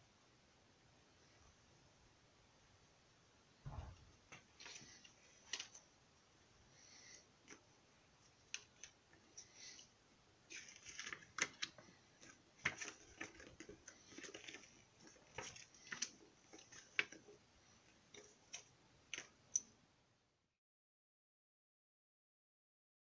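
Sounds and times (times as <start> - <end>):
paper crinkling: 3.7 - 5.8, 10.5 - 17.4
packaging clicks and crackles: 10.5 - 17.3.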